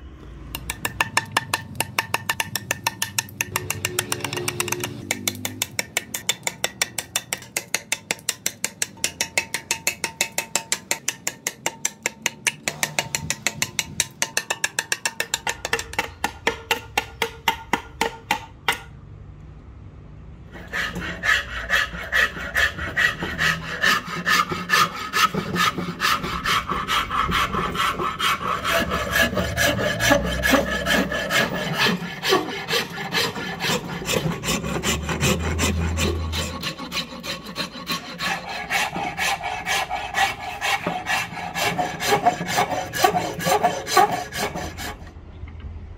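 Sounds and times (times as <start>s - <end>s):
metal file rasping on wood: 0.6s - 18.8s, 20.5s - 45.1s.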